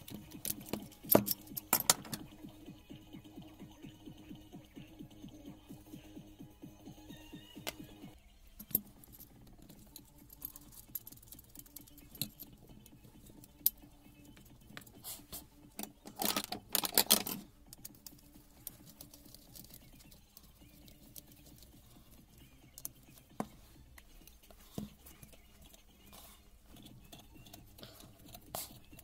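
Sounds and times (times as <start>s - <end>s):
metal parts clicking on workbench: 0.0s - 2.3s, 15.8s - 19.8s.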